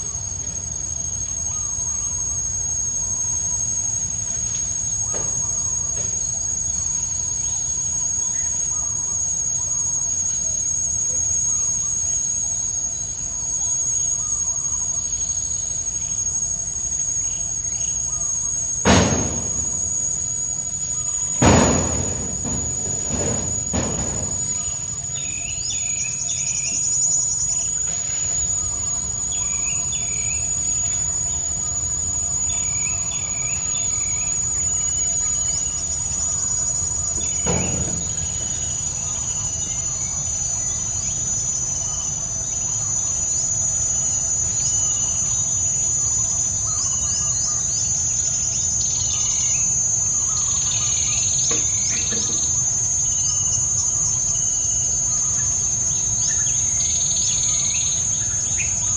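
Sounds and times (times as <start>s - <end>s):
high-pitched insect drone: 0.0s - 58.9s
brief knock: 18.8s - 19.7s, 21.4s - 24.9s
birds chirping: 20.8s - 31.6s.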